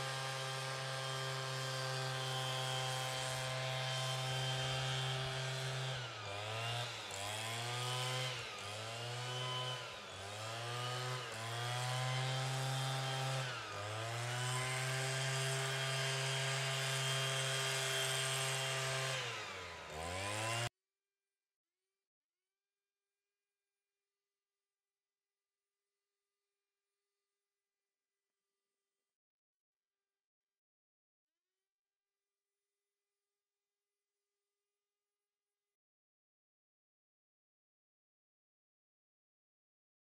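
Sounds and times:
small petrol engine at high revs: 0.0s - 20.7s.

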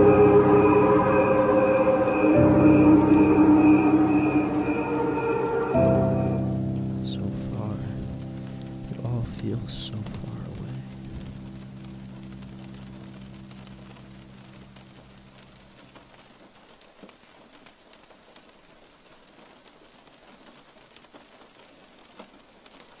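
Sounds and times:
held low chord: 0.0s - 15.4s
rain-like hiss with crackles: 0.0s - 23.0s.

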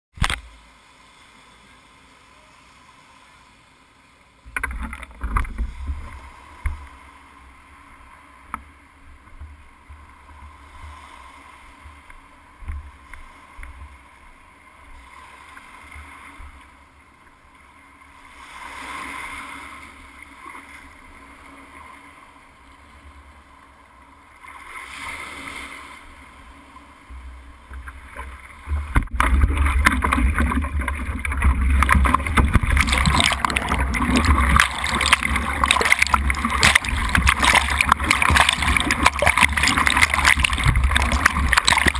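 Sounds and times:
surf washing onto shore: 27.8s - 41.9s
water sloshing against board: 27.8s - 41.9s
wind on microphone: 28.8s - 41.9s
board knocking and rumbling: 29.0s - 41.9s.

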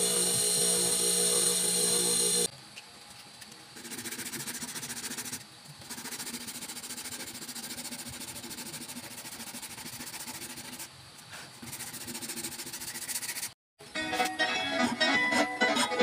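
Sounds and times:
sandpaper rasping: 3.8s - 13.6s.

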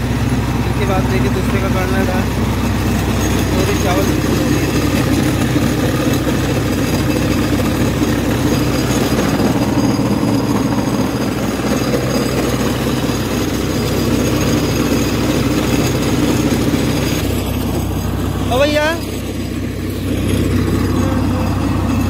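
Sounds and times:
rice huller machine running: 0.0s - 22.0s.

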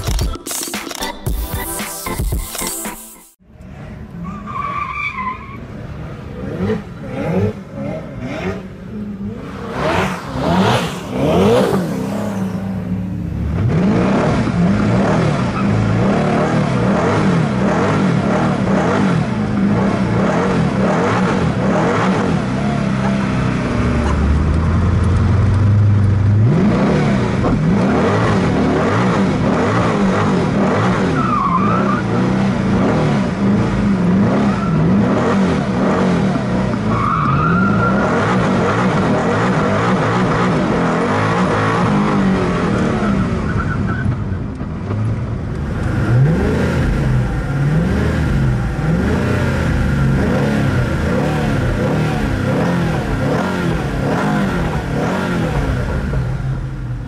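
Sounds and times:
tyres squealing and skidding: 4.2s - 5.8s, 30.7s - 32.3s, 34.2s - 35.3s, 36.8s - 38.8s, 43.0s - 44.4s
car engine revving: 5.6s - 57.0s.

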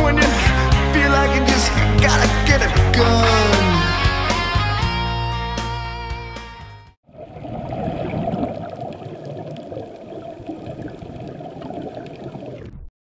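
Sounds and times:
underwater water rush: 7.0s - 12.9s.

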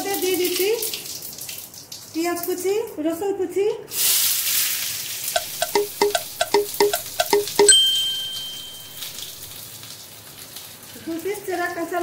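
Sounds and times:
onion and garlic sizzling in oil: 3.9s - 5.7s, 8.4s - 12.0s.

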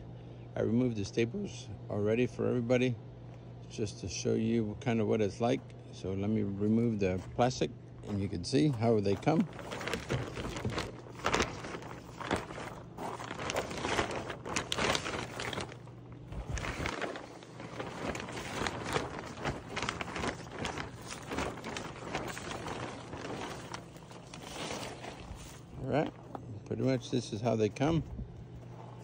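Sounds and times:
plastic wrap crinkling: 7.3s - 29.0s.

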